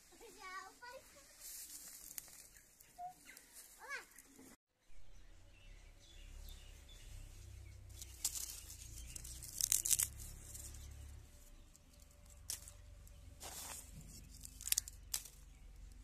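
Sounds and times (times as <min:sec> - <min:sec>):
sharp crackles: 0:01.3 - 0:03.7, 0:07.9 - 0:16.0
charcoal lumps clinking: 0:11.9 - 0:16.0.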